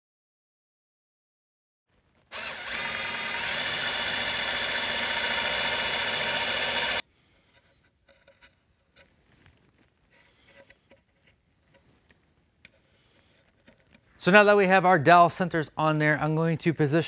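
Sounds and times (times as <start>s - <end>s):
cordless drill boring wood: 2.3s - 7.0s.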